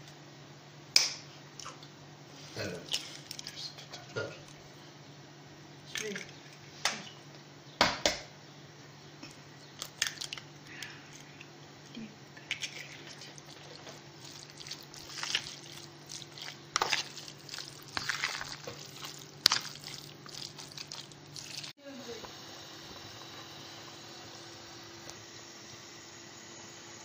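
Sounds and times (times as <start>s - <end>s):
faint steady hum: 0.0s - 27.0s
wet squelches of kneading: 1.6s - 4.7s, 9.3s - 21.8s.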